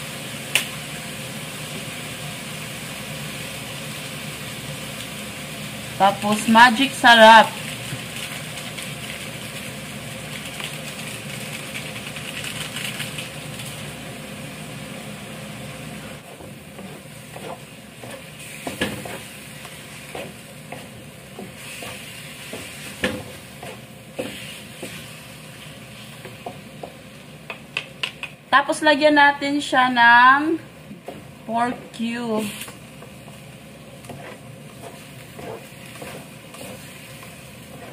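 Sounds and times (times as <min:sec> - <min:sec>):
meat sizzling in a pan: 0:00.0 - 0:28.0, 0:32.0 - 0:37.9
spatula scraping a pan: 0:16.3 - 0:26.9, 0:33.9 - 0:37.9.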